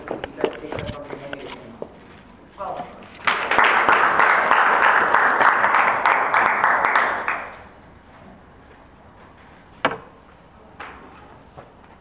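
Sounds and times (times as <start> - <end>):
audience applause: 3.2 - 7.7.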